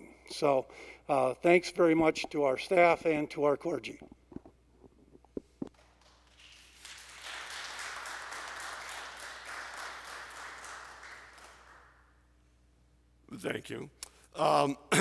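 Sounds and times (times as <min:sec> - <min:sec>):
congregation applauding: 0:05.8 - 0:12.1.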